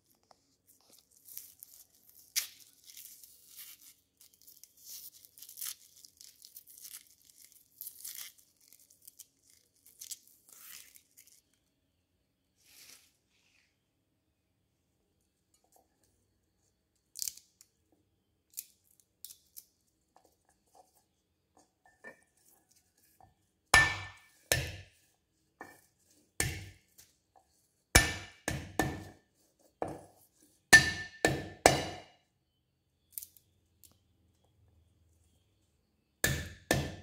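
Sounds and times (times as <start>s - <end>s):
faint clicks of cloves handled: 15.2s - 23.5s
cleaver striking wooden chopping board: 28.0s - 29.0s, 36.2s - 37.0s.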